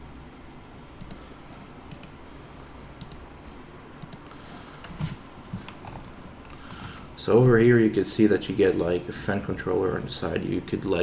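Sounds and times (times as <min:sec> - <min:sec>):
low background hum: 0:00.0 - 0:11.0
computer mouse clicking: 0:01.0 - 0:01.2, 0:01.9 - 0:02.2, 0:03.0 - 0:03.3, 0:04.0 - 0:06.9.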